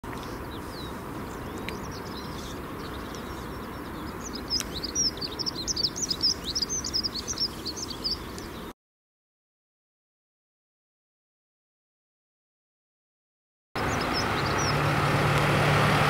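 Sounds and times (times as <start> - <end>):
songbird chirping: 0.0 - 8.7, 13.8 - 16.0.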